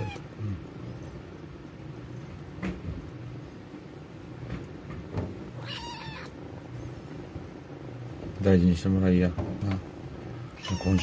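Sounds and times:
kitten meowing: 0.0 - 0.3, 5.6 - 6.4, 10.5 - 11.0.

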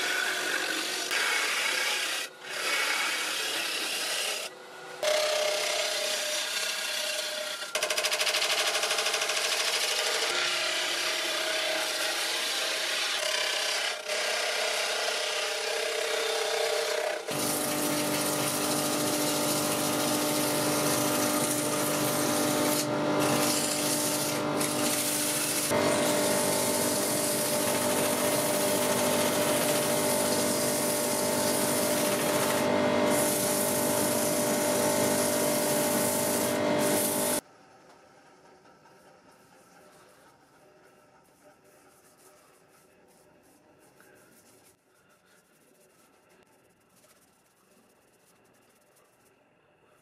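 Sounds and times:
sandpaper rubbing spinning wood: 0.0 - 4.5, 8.0 - 37.4, 38.8 - 49.3
gouge cutting wood on lathe: 0.0 - 37.4
lathe motor hum: 12.4 - 37.4.

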